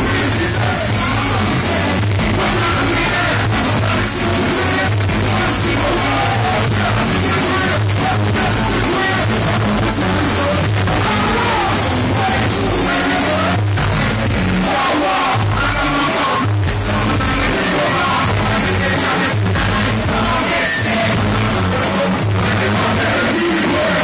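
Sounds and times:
bass-driven hip-hop beat: 0:00.0 - 0:24.0
person rapping: 0:00.0 - 0:24.0.

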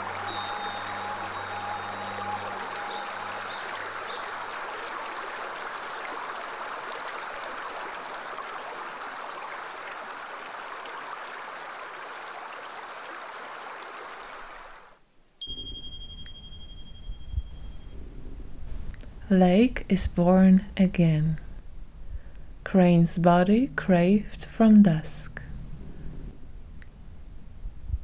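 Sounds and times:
stream water rushing: 0:00.0 - 0:15.0.

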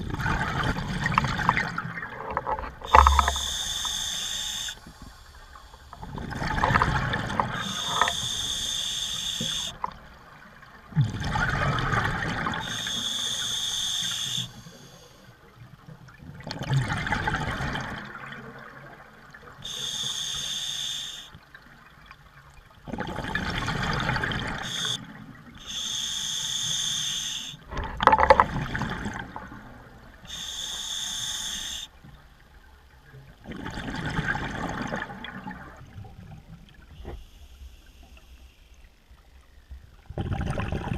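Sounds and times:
exhaled bubbles gushing: 0:00.0 - 0:04.7, 0:06.0 - 0:08.5, 0:10.9 - 0:12.9, 0:16.3 - 0:19.0, 0:22.8 - 0:25.0, 0:27.7 - 0:30.0, 0:33.4 - 0:36.4, 0:40.0 - 0:40.9
hissing regulator inhale: 0:02.8 - 0:06.8, 0:07.4 - 0:09.9, 0:12.6 - 0:15.3, 0:19.6 - 0:21.4, 0:24.5 - 0:25.0, 0:25.6 - 0:27.7, 0:30.2 - 0:32.0, 0:37.0 - 0:38.8.

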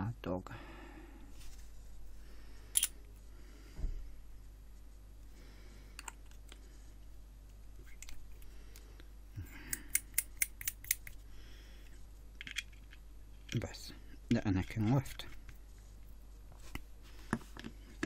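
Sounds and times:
small metal parts clicking: 0:02.7 - 0:03.0, 0:09.7 - 0:11.1.

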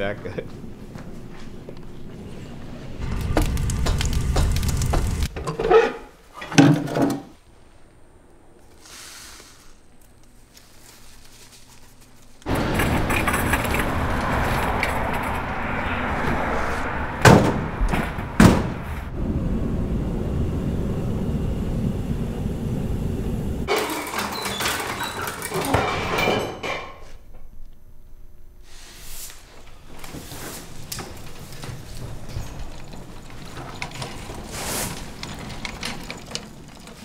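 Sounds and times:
loud rushing noise: 0:02.9 - 0:05.4, 0:12.5 - 0:23.7
sharp slams: 0:12.5 - 0:19.1.

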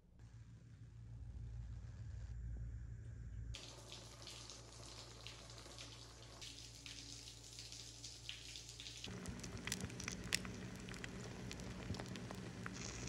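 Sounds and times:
eggs sizzling in a pan: 0:03.6 - 0:13.0
shower water running: 0:03.6 - 0:13.0.

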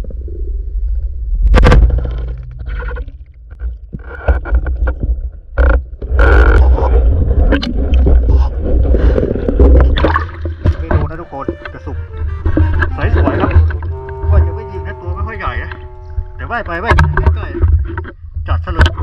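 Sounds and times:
bubbling: 0:00.0 - 0:14.1
muffled underwater rumble: 0:00.0 - 0:19.0
underwater clicks: 0:01.5 - 0:08.4, 0:09.1 - 0:14.2, 0:15.4 - 0:19.0
water splashing: 0:01.5 - 0:18.1.

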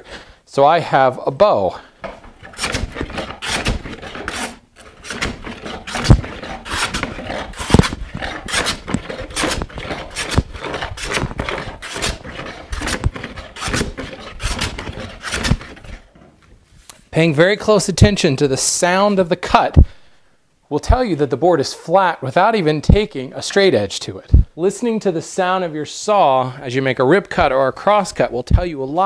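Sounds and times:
hand plane rasping on wood: 0:02.1 - 0:16.0.

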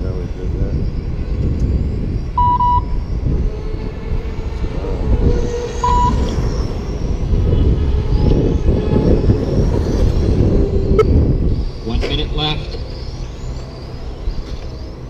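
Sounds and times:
rc race cars whining: 0:00.0 - 0:15.0
steady low rumble: 0:00.0 - 0:15.0
short electronic beep: 0:02.4 - 0:03.0, 0:05.8 - 0:06.3.

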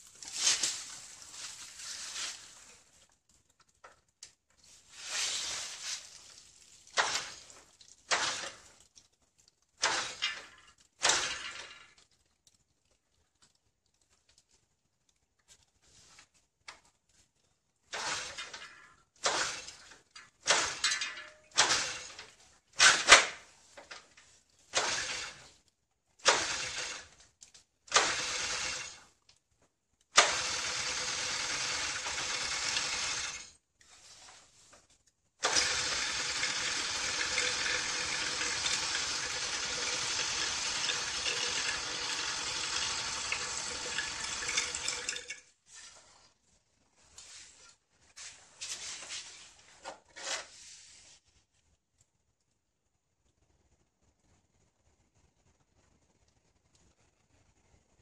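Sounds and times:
engine kick-start kicks: 0:07.0 - 0:07.4, 0:08.1 - 0:08.6, 0:19.2 - 0:22.2, 0:26.2 - 0:27.1, 0:27.9 - 0:29.0, 0:30.2 - 0:33.4.

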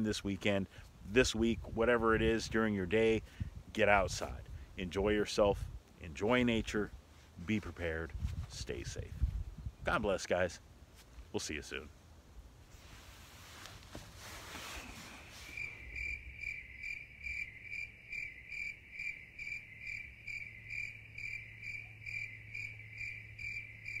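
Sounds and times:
soft hiss: 0:00.0 - 0:16.3
cricket chirping: 0:15.5 - 0:24.0.

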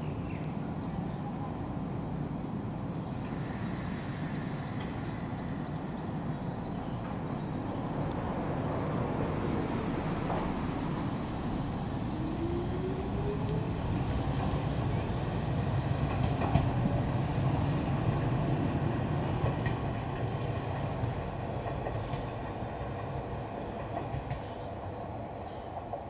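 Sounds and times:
wheels clicking over rail joints: 0:21.6 - 0:24.9.

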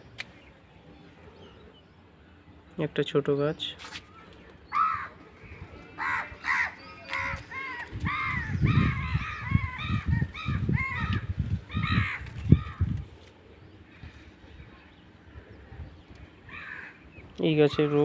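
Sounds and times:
crows cawing: 0:04.7 - 0:05.2, 0:06.0 - 0:12.9, 0:16.2 - 0:17.1.

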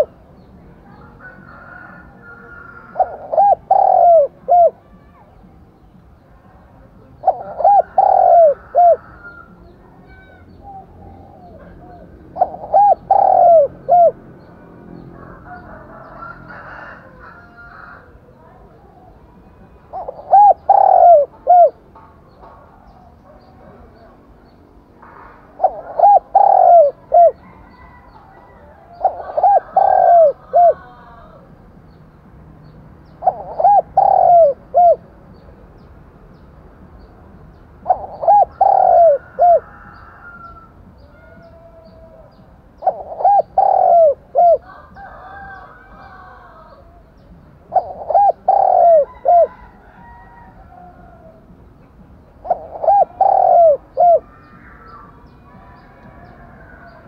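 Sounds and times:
dove cooing: 0:00.0 - 0:00.2, 0:00.9 - 0:04.8, 0:07.2 - 0:14.3, 0:19.9 - 0:21.8, 0:25.1 - 0:31.4, 0:33.2 - 0:35.1, 0:37.8 - 0:47.1, 0:47.7 - 0:51.4, 0:52.4 - 0:54.6
higher bird calls: 0:00.9 - 0:05.8, 0:07.2 - 0:14.2, 0:19.9 - 0:21.8, 0:25.0 - 0:31.5, 0:33.1 - 0:35.0, 0:37.8 - 0:51.5, 0:52.3 - 0:57.0.

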